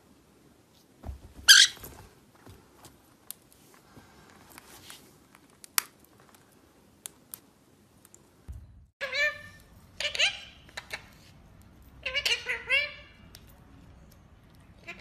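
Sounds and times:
parrot squeaking: 0:01.5 - 0:01.8, 0:09.0 - 0:11.3, 0:12.0 - 0:13.2.

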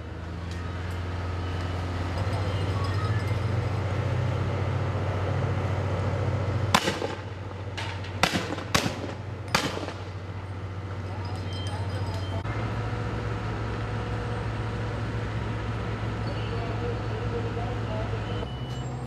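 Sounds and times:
vehicle engine running: 0:00.0 - 0:19.0
fireworks bangs: 0:06.7 - 0:10.2.

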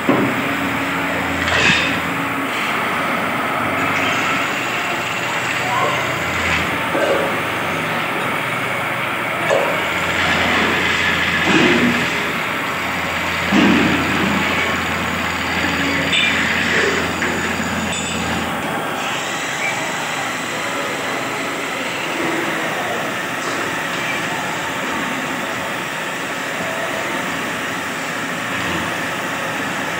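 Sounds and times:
lathe motor hum: 0:00.0 - 0:29.9
chisel cutting spinning wood: 0:03.8 - 0:07.8.

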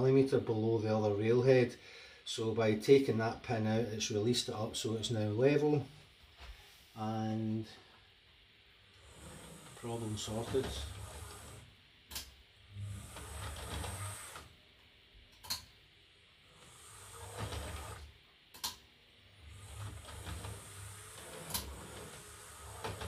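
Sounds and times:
small electric motor whirring: 0:09.0 - 0:11.7, 0:12.7 - 0:14.6, 0:16.4 - 0:18.1, 0:19.4 - 0:23.0
sharp clicks: 0:18.5 - 0:18.8.

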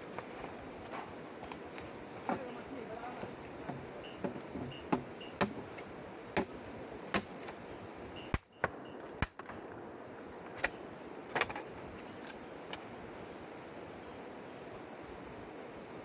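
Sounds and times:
steady background hiss: 0:00.0 - 0:16.0.

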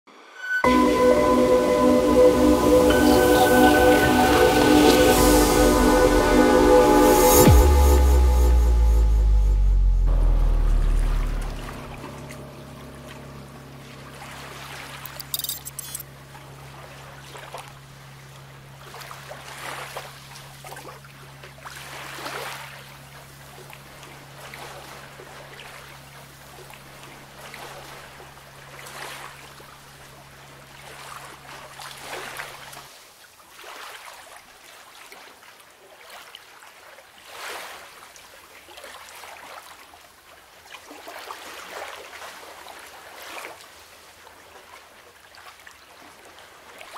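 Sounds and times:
low steady hum: 0:00.6 - 0:17.2
small waves lapping: 0:27.4 - 0:46.9.

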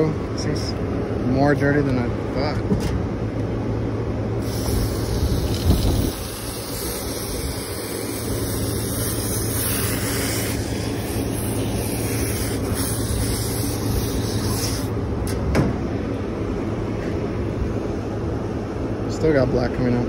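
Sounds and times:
hose spray nozzle hissing: 0:04.4 - 0:14.9.

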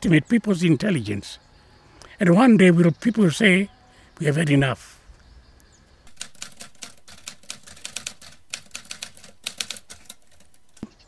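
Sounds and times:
typewriter keys clacking: 0:06.1 - 0:10.9.

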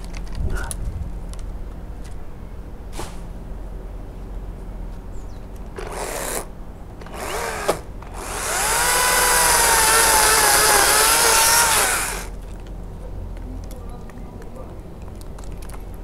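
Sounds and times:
electric chainsaw cutting wood: 0:05.8 - 0:12.4.

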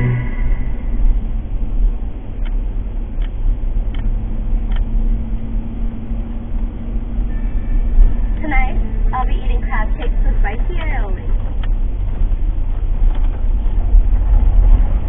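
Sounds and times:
car engine and road rumble: 0:00.0 - 0:15.0
low steady hum: 0:00.0 - 0:15.0.

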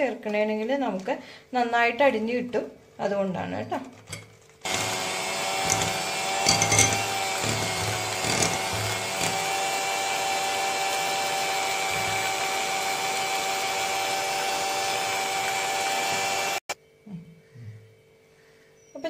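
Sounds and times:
electric hand mixer whining: 0:04.6 - 0:16.8.

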